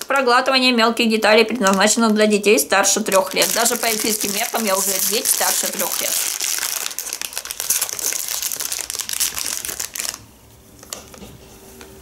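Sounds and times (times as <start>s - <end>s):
packet wrapper crinkling: 2.8s - 11.1s.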